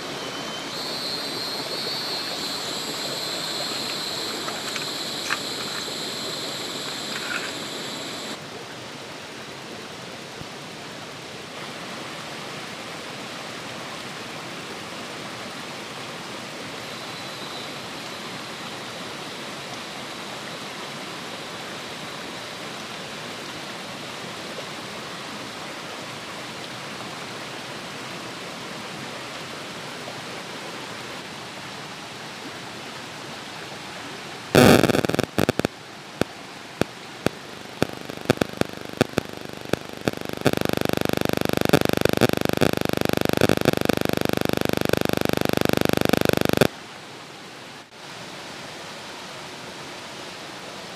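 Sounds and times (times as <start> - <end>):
high steady tone: 0.6 - 8.4, 34.6 - 35.7, 37.3 - 46.7.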